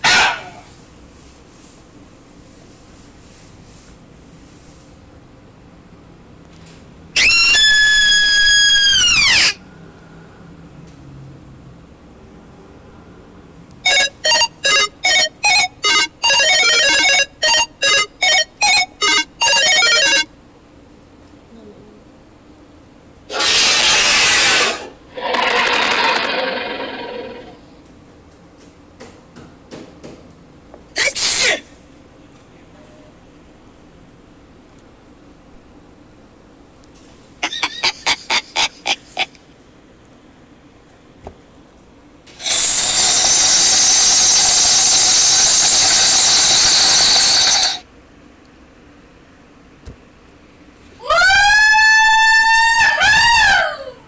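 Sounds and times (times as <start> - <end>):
harsh noise bursts: 0.0 - 0.7, 7.2 - 9.6, 13.8 - 20.3, 23.3 - 27.6, 42.3 - 47.8
loud hissing screech: 7.2 - 9.7, 13.9 - 20.2, 23.3 - 27.6, 42.3 - 47.8.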